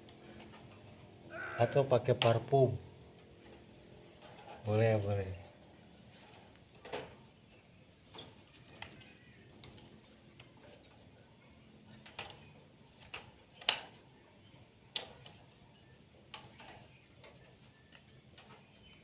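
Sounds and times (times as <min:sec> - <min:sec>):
bird cage clicking and tapping: 0:08.0 - 0:11.0, 0:11.8 - 0:14.0.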